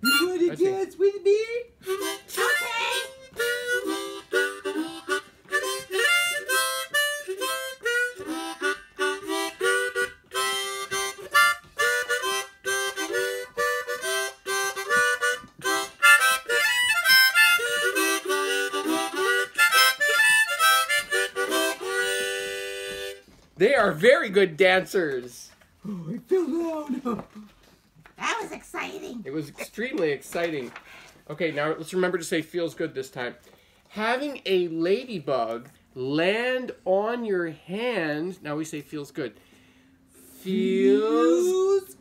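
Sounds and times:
harmonica playing dance tune: 0:00.0 - 0:00.8, 0:01.8 - 0:23.3.

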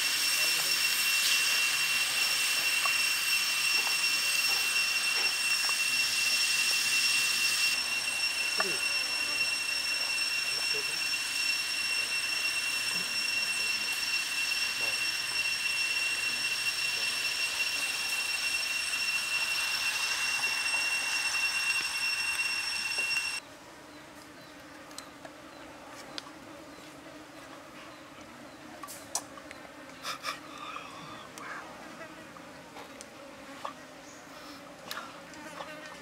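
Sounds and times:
high-pitched insect drone: 0:00.0 - 0:23.4.

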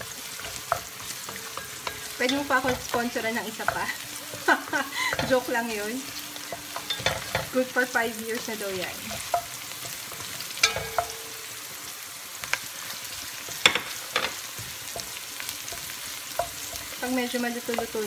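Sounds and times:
spatula scraping and knocking pot: 0:00.0 - 0:05.6, 0:06.4 - 0:07.6, 0:08.8 - 0:11.5, 0:13.3 - 0:17.1
onion sizzling in oil: 0:00.0 - 0:18.0.

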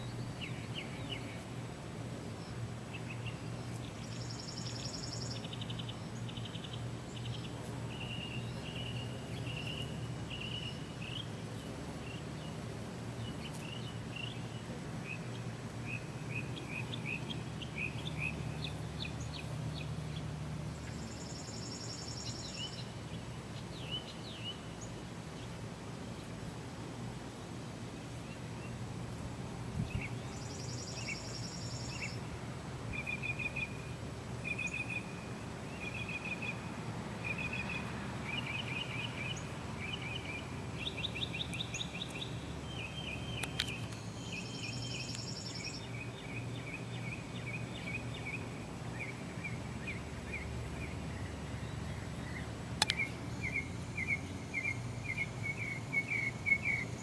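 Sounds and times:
songbirds chirping and trilling: 0:00.0 - 0:57.0
sharp click: 0:52.8 - 0:53.0.

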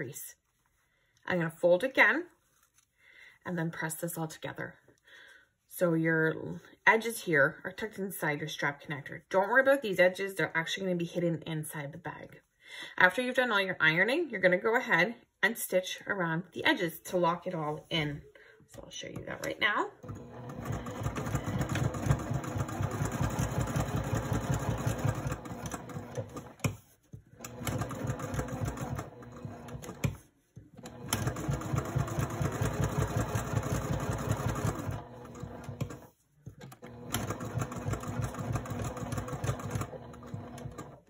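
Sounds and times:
sewing machine stitching: 0:19.2 - 0:41.0.

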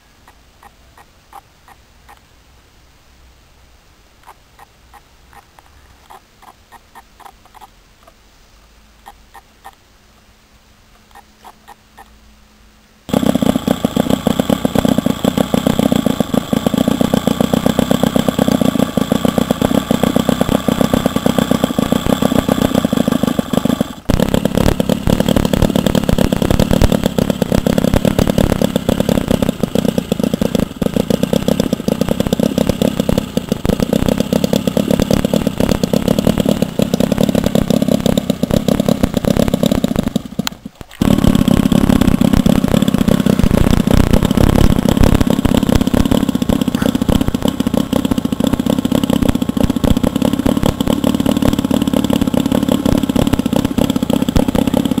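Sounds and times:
model diesel engine knocking: 0:13.1 - 0:55.0.

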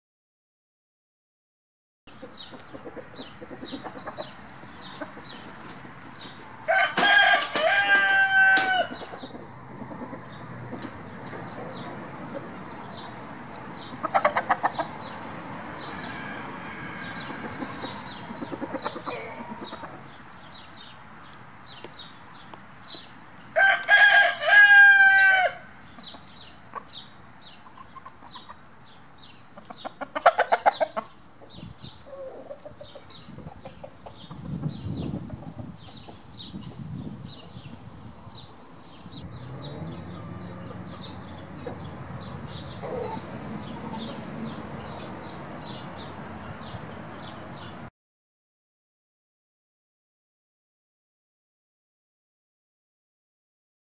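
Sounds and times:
chicken clucking: 0:02.1 - 0:20.9, 0:26.0 - 0:28.8, 0:29.5 - 0:36.8, 0:39.6 - 0:44.4
rooster crowing: 0:06.6 - 0:09.0, 0:15.8 - 0:18.0, 0:23.6 - 0:25.7.

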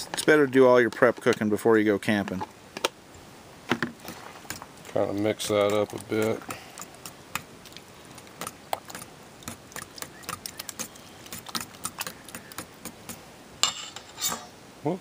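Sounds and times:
spoon scraping metal bowl: 0:13.6 - 0:14.5.

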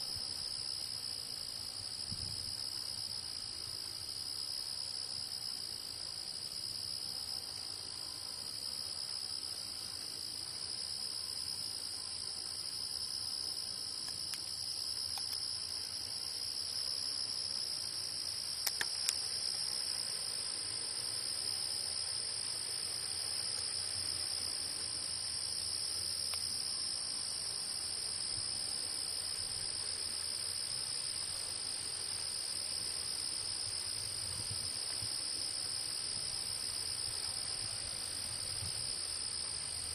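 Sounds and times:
insects trilling: 0:00.0 - 0:39.9
sharp clicks: 0:18.6 - 0:19.2.

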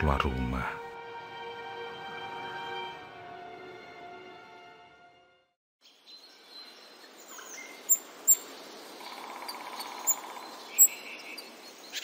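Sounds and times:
birds chirping: 0:05.8 - 0:12.0.

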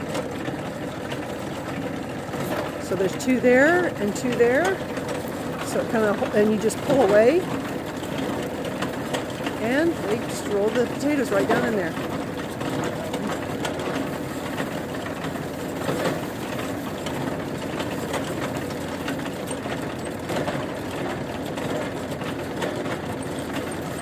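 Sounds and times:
tractor engine idling: 0:00.0 - 0:24.0.

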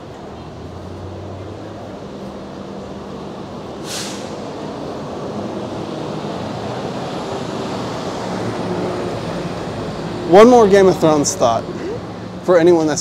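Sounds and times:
street traffic: 0:00.0 - 0:13.0
short sharp hiss: 0:03.8 - 0:04.5.

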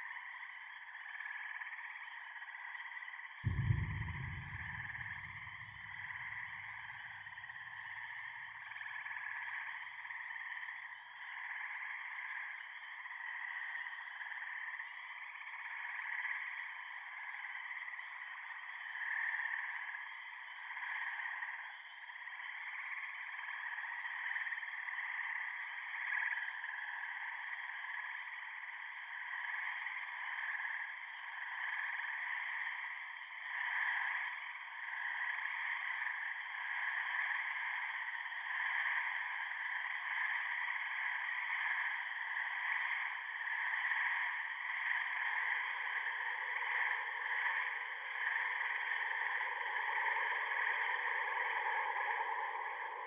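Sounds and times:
low rumble: 0:03.5 - 0:08.3.

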